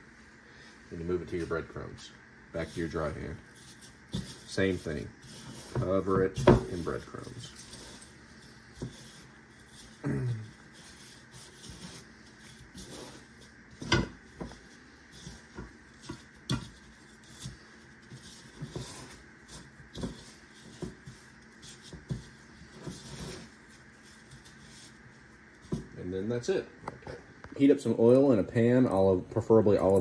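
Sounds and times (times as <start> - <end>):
hands rubbing breadcrumbs: 2.6 - 25.9.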